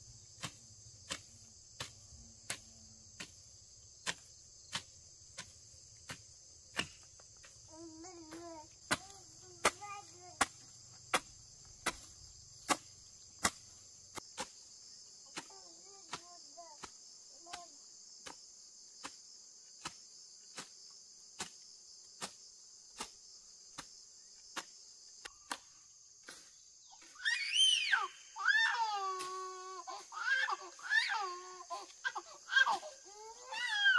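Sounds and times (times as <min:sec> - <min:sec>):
insect chorus: 0:00.0 - 0:33.9
hand tool chopping grass: 0:00.3 - 0:14.6, 0:15.3 - 0:18.4, 0:21.4 - 0:21.6, 0:22.2 - 0:26.5.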